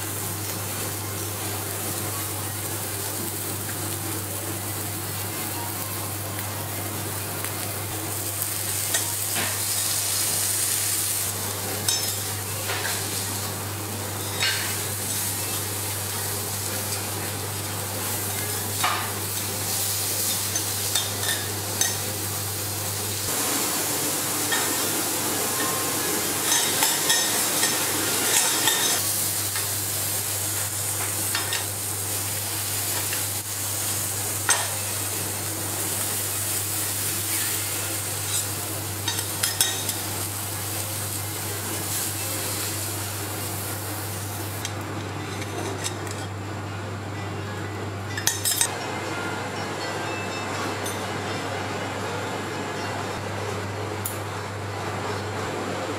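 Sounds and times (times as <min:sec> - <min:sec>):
scallops sizzling on griddle: 0:00.1 - 0:44.7.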